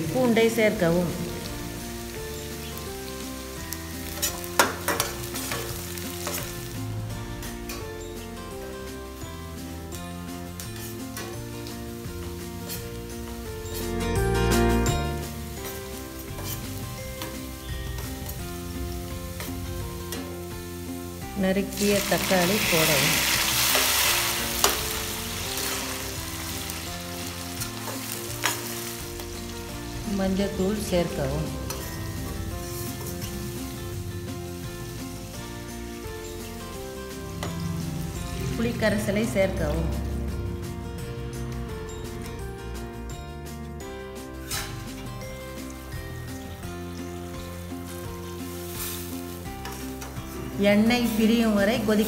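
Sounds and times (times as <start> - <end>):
food sizzling in hot oil: 0.0 - 42.1, 43.8 - 52.0
metal ladle scraping a pan: 15.5 - 18.4, 22.1 - 29.5, 31.5 - 34.6, 44.4 - 45.0, 47.9 - 50.4.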